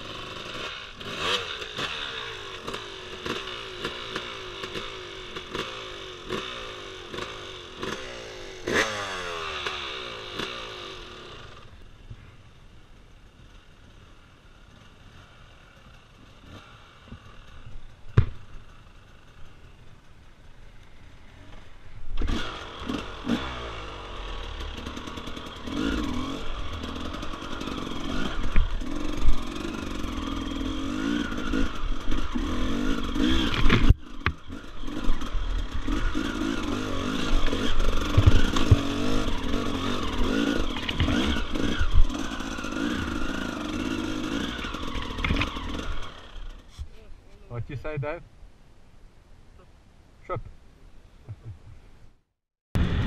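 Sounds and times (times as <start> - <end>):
dirt bike engine revving: 0.0 - 11.8, 13.3 - 48.2.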